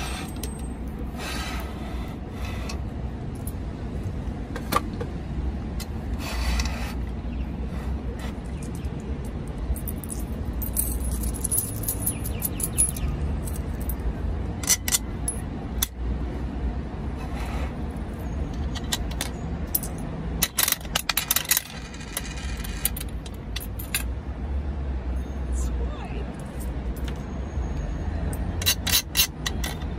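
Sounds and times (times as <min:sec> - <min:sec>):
coin mechanism clicking: 0:18.6 - 0:24.1, 0:28.4 - 0:29.9.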